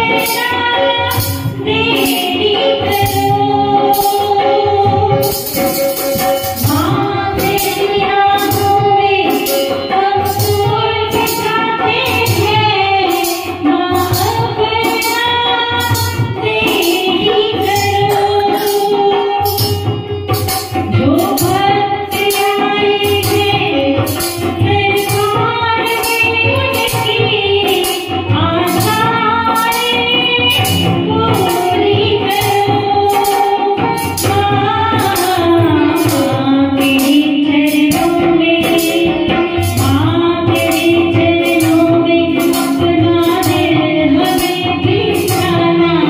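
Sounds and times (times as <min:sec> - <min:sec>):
percussion beat: 0:00.0 - 0:46.0
woman singing through a microphone: 0:00.0 - 0:46.0.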